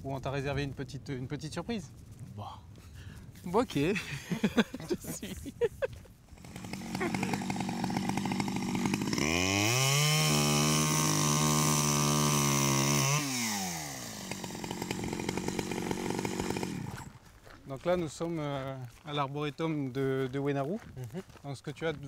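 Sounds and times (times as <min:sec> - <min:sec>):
small petrol engine revving: 0:06.3 - 0:17.1.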